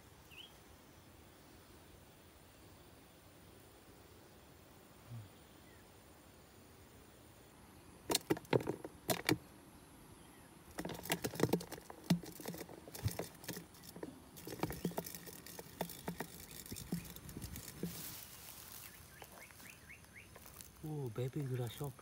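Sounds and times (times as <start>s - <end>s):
rustle: 0.0s - 22.0s
plastic box clicks and knocks: 8.1s - 9.4s, 10.7s - 18.0s.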